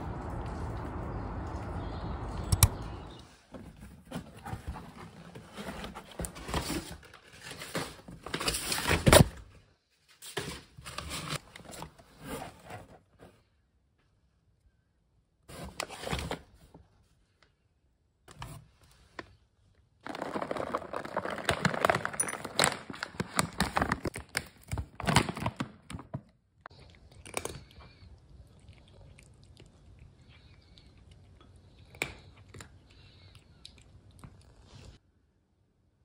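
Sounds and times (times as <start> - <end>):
small clicks: 2.4 - 2.9
cat crunching dry kibble: 20.0 - 26.0, 26.7 - 34.8
packaging crinkling and rustling: 20.0 - 26.3.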